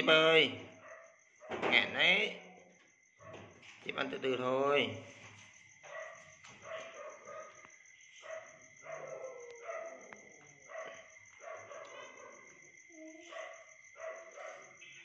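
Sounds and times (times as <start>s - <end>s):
dog barking: 0.7s - 1.6s, 3.2s - 3.6s, 5.8s - 15.0s.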